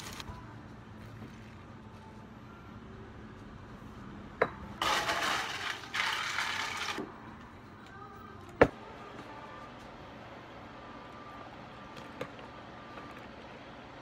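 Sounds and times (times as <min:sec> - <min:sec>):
ice cubes rattling into plastic cup: 0:04.8 - 0:07.0.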